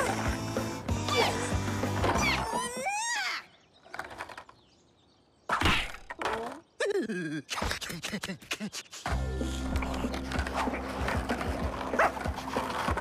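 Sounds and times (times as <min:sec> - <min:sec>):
background music: 0:00.0 - 0:02.9, 0:09.1 - 0:13.0.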